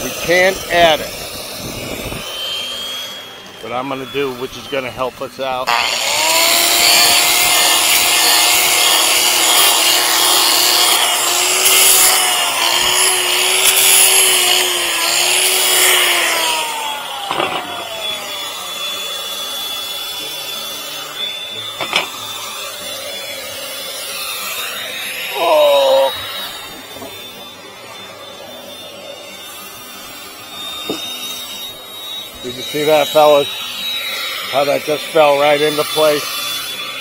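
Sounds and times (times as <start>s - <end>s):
power tool cutting wood: 0.0s - 37.0s.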